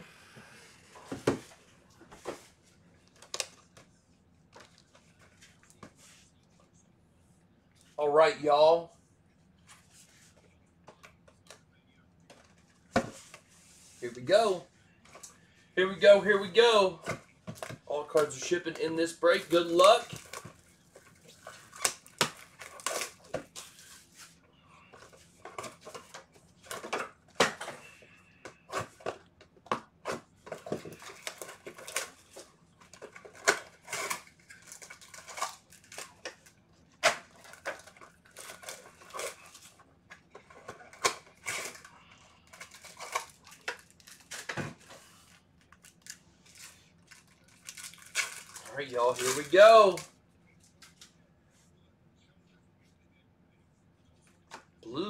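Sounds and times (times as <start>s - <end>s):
foil wrappers crinkling and tearing: 18.1s - 23.9s, 30.5s - 50.0s
cards rustling and clicking: 24.9s - 51.2s.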